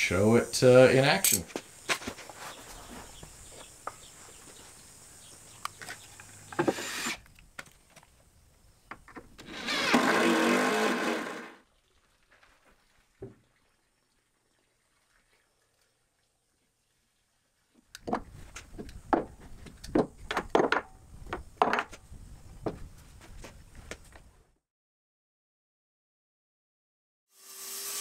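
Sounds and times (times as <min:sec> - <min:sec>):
cordless drill driving screw: 0:06.6 - 0:07.2, 0:09.4 - 0:11.6.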